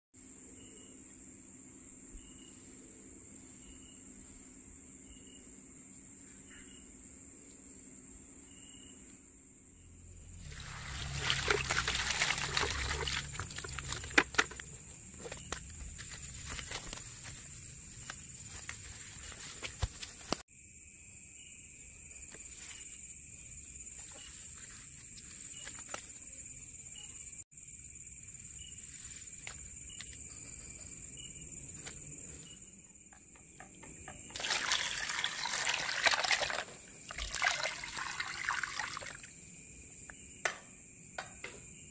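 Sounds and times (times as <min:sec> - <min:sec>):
high insect chirping: 0:00.3 - 0:41.9
water splashing and sloshing: 0:10.2 - 0:20.4, 0:34.2 - 0:39.4
water pouring into plastic basin: 0:10.3 - 0:14.6, 0:34.3 - 0:39.3.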